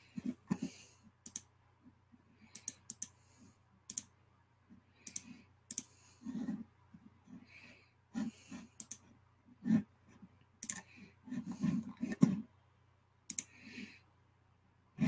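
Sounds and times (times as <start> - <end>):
computer keyboard clicking: 1.2 - 1.5.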